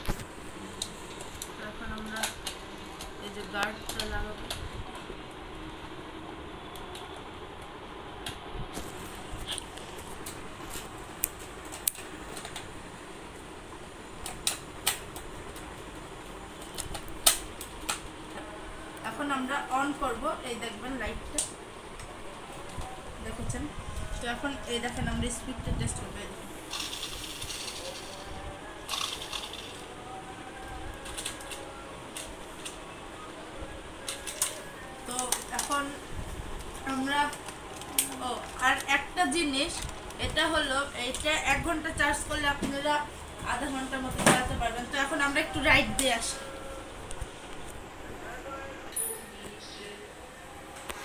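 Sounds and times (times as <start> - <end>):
steady background hum: 0.0 - 51.0
toy car electric motor whirring: 26.7 - 28.3, 28.9 - 29.8.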